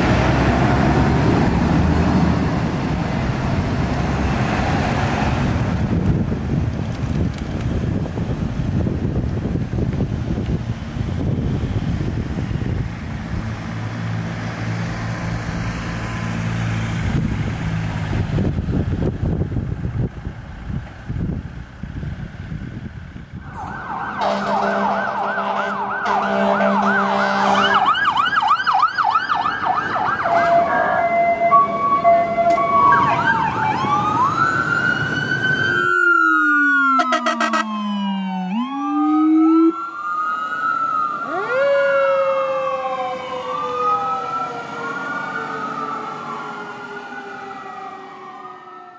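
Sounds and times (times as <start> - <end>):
sirens wailing: 0.0 - 6.1, 23.4 - 48.9
low falling and climbing siren: 23.4 - 48.9
siren yelp: 23.4 - 48.9
two-tone hi-lo siren: 23.4 - 48.9.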